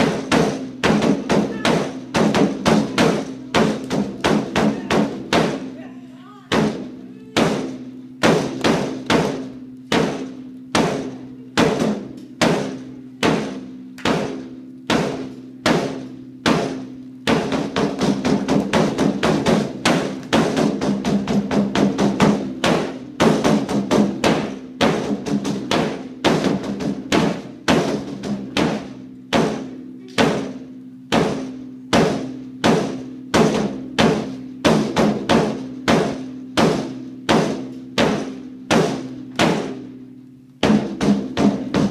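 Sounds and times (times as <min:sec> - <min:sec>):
drum beating: 0:00.0 - 0:41.9.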